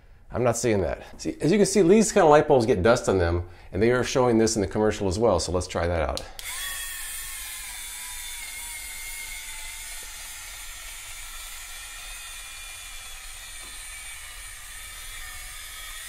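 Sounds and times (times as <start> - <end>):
small motor whirring: 6.4 - 16.0.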